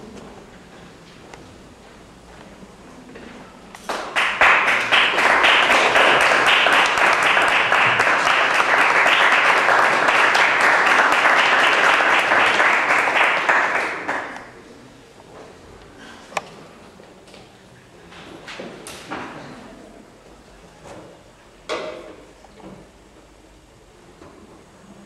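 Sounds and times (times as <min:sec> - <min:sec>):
audience applauding: 0:03.8 - 0:14.6.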